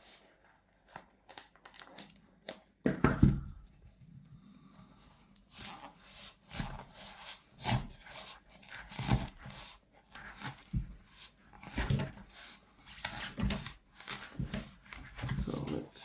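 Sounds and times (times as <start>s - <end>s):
knife sawing into shoe foam: 5.5s - 15.6s.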